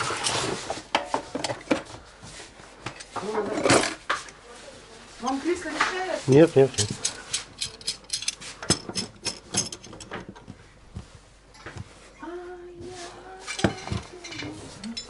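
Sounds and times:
hard objects clinking: 6.3s - 10.2s.

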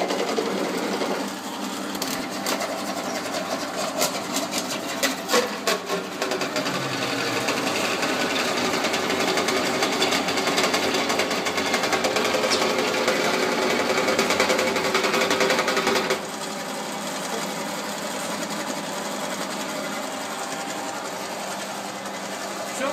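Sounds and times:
drain-cleaning machine running: 0.0s - 22.9s.

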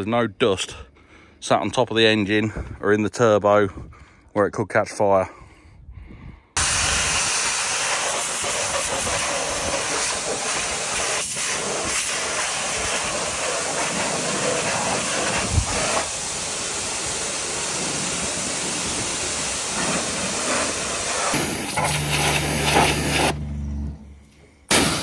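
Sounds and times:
pressure washer spraying: 6.6s - 23.4s.

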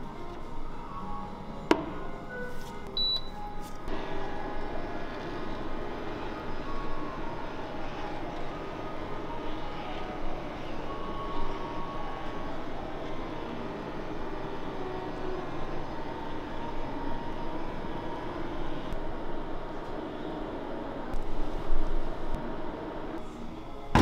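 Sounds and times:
cooktop whirring hum: 0.0s - 24.0s
cooktop beep: 3.0s - 3.4s.

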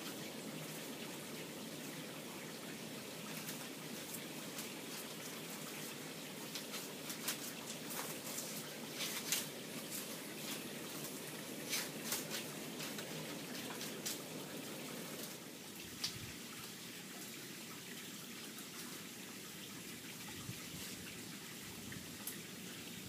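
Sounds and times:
palm leaves rustling and crackling: 0.0s - 17.3s, 18.5s - 19.2s.

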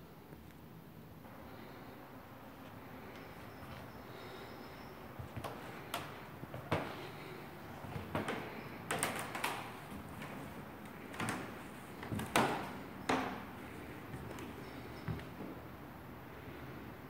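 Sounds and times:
footsteps on wooden floorboards: 5.2s - 15.6s.

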